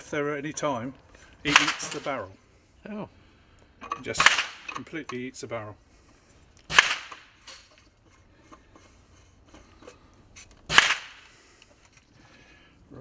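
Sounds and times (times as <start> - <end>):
rifle shots: 1.5 - 2.2, 4.1 - 4.7, 6.7 - 7.4, 10.7 - 11.3.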